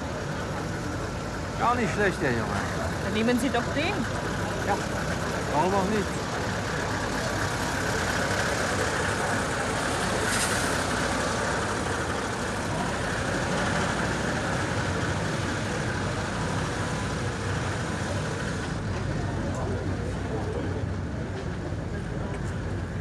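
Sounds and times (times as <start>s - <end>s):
diesel truck engine running slowly: 0.0s - 23.0s.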